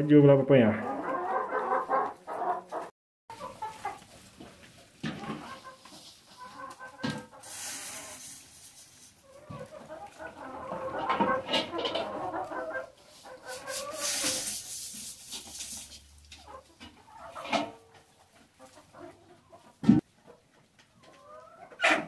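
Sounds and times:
hens clucking: 0.4 - 22.0
feed pouring rustle: 7.4 - 9.4, 13.1 - 16.1.

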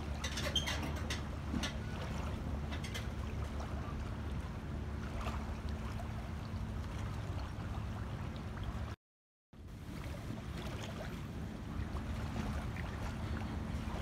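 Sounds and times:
faint steady hum: 9.6 - 14.0
wind rumbling on microphone: 9.7 - 14.0.

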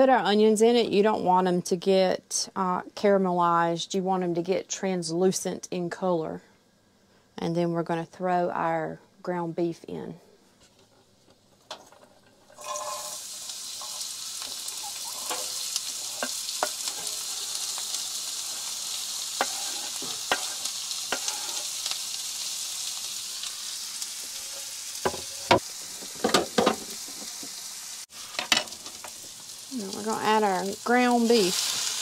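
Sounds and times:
onion sizzling in a pan: 12.4 - 32.0
utensil scraping and tapping: 19.4 - 21.6.

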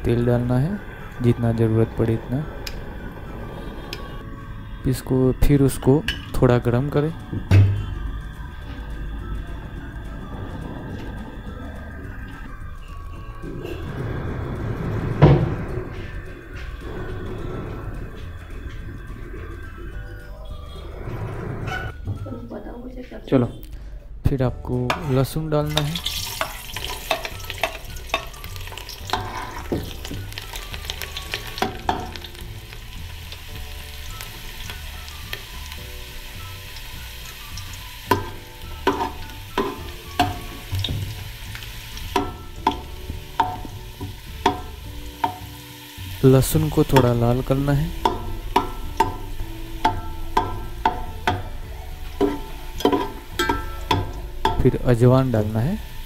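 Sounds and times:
ladle clinking and scraping pot: 24.9 - 30.5, 38.1 - 45.4, 48.0 - 54.7
garlic sizzling in hot oil: 25.0 - 56.0.

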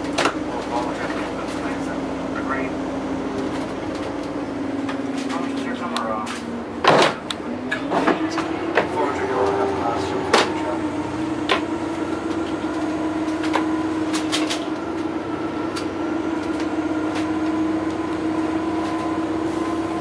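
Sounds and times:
bus engine drone: 0.0 - 20.0
road noise: 0.0 - 20.0.

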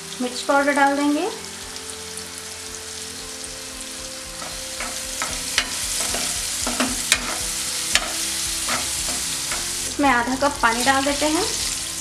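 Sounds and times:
food sizzling in a pan: 0.0 - 12.0
metal spatula scraping a pan: 4.4 - 12.0.

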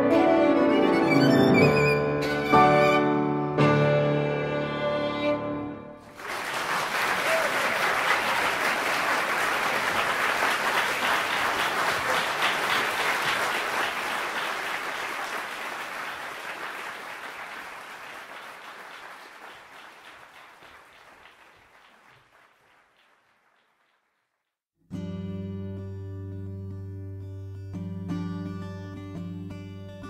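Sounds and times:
audience applause: 6.0 - 24.4.

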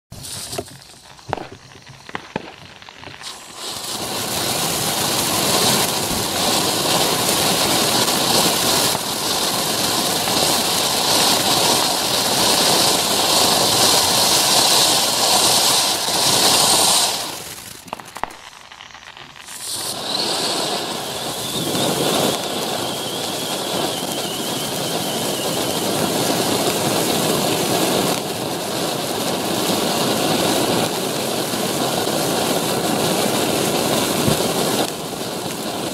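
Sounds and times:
fuse crackling: 0.1 - 28.3
firework fountain hissing: 0.1 - 35.9.

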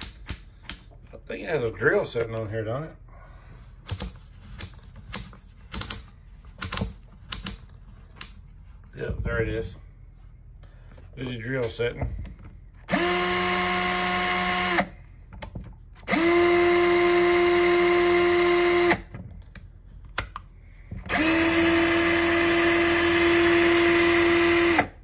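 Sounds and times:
drill motor whine: 12.9 - 14.9, 16.1 - 19.0, 21.1 - 25.0.

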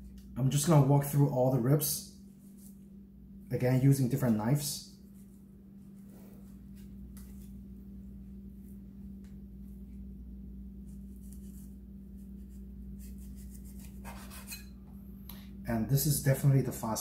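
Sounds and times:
steady low hum: 0.0 - 17.0
knife slicing and scraping: 11.0 - 14.8.

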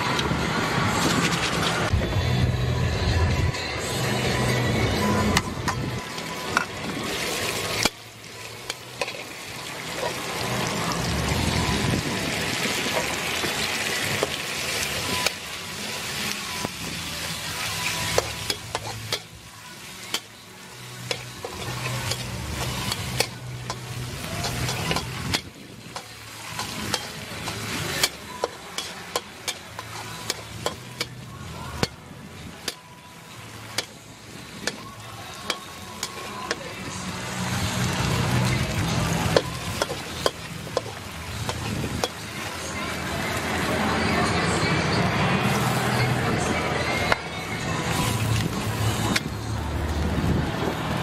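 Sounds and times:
metal ladle scraping a wok: 4.1 - 10.7, 17.4 - 32.0
meat sizzling in a wok: 4.1 - 43.8, 45.4 - 46.4
ladle clinking against wok: 21.0 - 31.2.

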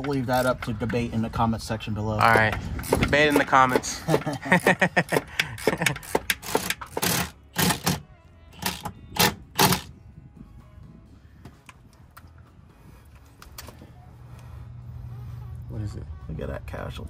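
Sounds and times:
hand tools clicking on bolts: 0.0 - 1.1, 2.2 - 8.0
impact wrench hammering: 2.3 - 8.0, 8.6 - 9.9.

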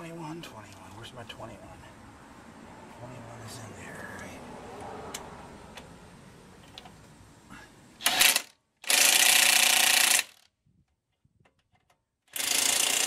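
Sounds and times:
cordless driver running bolts: 8.0 - 10.4, 11.8 - 13.0.

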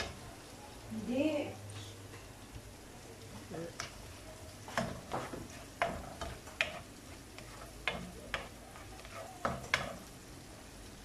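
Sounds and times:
garlic and onion sizzling: 0.0 - 11.0
spoon knocking against pan: 4.7 - 10.1.

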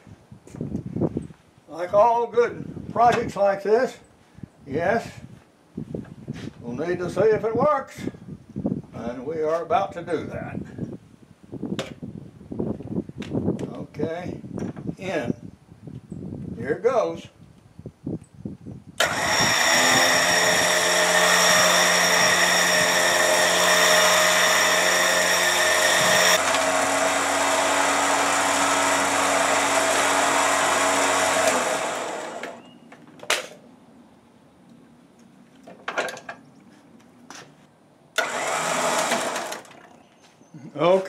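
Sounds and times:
electric winch motor whine: 19.0 - 32.6, 38.2 - 39.8.

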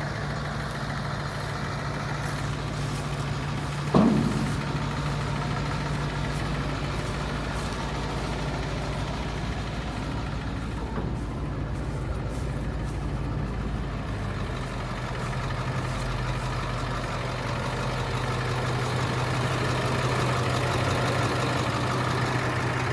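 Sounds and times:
diesel engine idling: 0.0 - 22.9.

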